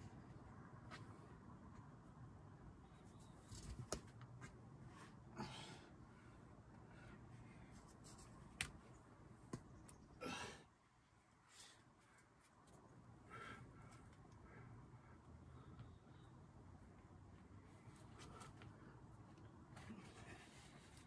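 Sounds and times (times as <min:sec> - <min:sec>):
person exhaling hard: 0:10.2 - 0:10.6.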